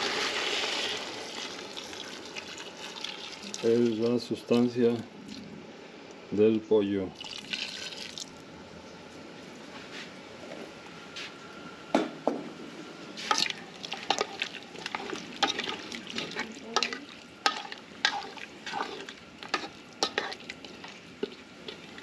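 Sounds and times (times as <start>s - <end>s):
metal spoon stirring stew: 13.3s - 22.0s.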